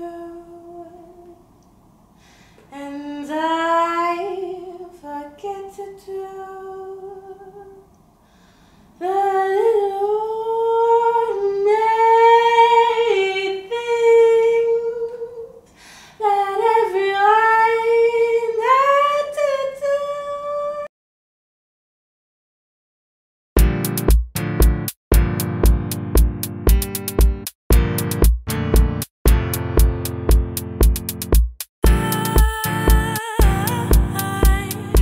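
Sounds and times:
woman singing: 0.0 - 1.4, 2.7 - 7.9, 9.0 - 20.9, 31.8 - 35.0.

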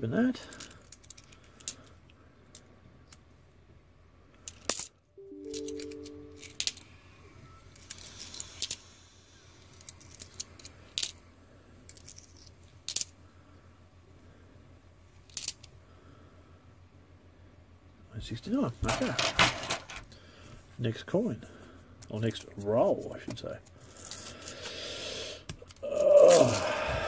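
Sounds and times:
coins clinking: 4.5 - 6.8
chord of low tones: 5.2 - 6.9.

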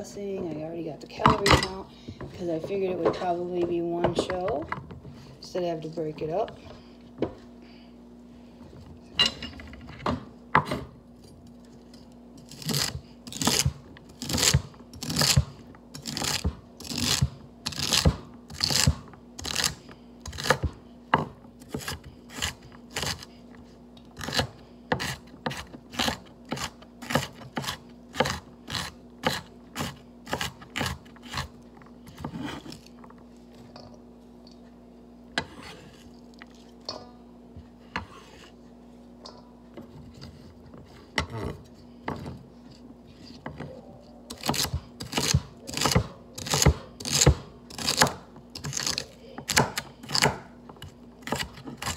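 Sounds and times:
knife chopping on cutting board: 24.2 - 32.8, 44.3 - 51.9.

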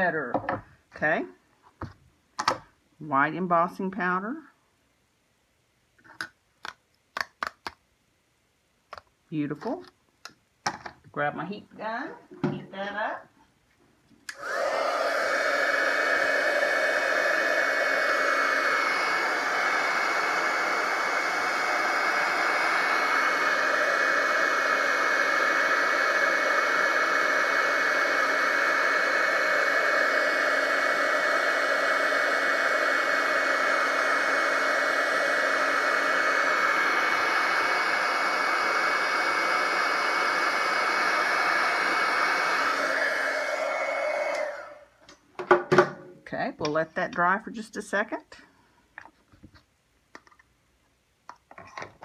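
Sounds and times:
heat gun blowing air: 14.3 - 45.0.

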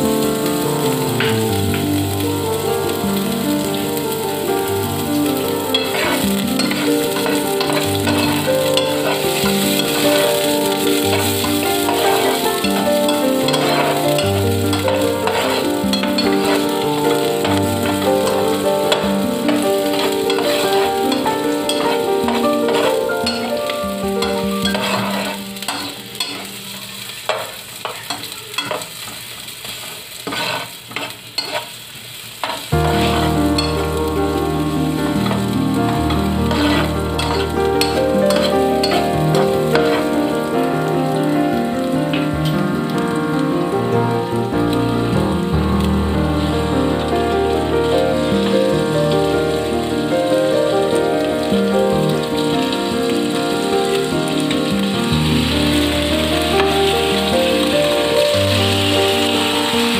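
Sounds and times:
background music: 0.0 - 26.3, 32.8 - 59.9
food sizzling in hot oil: 0.0 - 59.9
spatula stirring in pot: 5.7 - 31.8, 32.4 - 33.8, 36.5 - 40.1.

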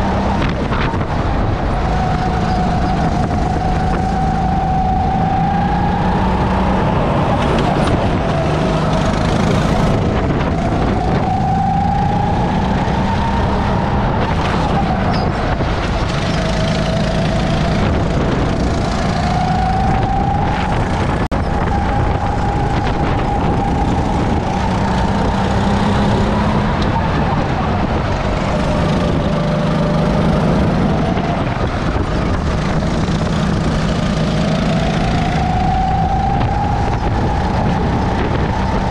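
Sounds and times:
constant rush of noise: 0.0 - 38.9
go-kart engine revving: 0.0 - 38.9.

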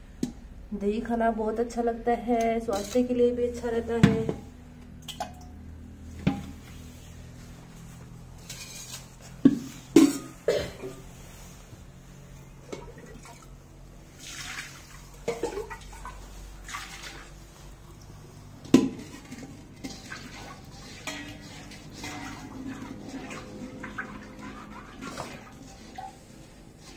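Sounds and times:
steel pots clanking: 8.4 - 11.1, 15.1 - 16.3, 18.6 - 26.9
wet squelching of curd: 10.9 - 26.9.

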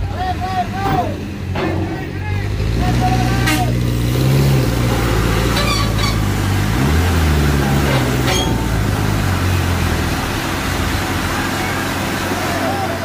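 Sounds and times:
diesel truck engine labouring: 0.0 - 13.0
short high-pitched squeaks: 5.5 - 6.3, 8.2 - 8.7.

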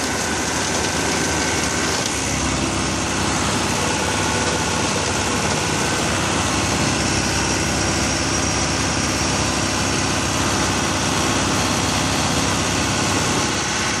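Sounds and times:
tractor running under load: 0.0 - 14.0.

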